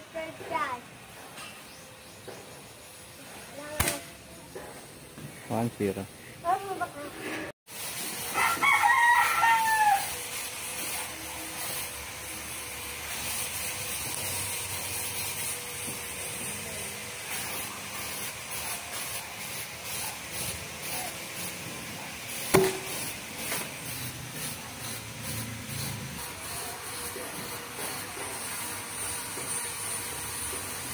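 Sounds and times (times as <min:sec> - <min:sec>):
air rifle firing: 0:03.7 - 0:04.2
rooster crowing: 0:08.2 - 0:10.3.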